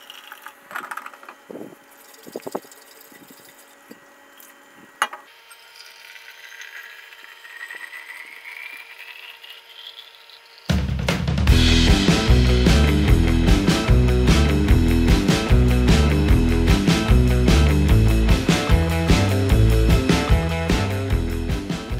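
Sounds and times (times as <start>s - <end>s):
water pouring into metal bottle: 1.8s - 3.8s, 5.7s - 10.7s.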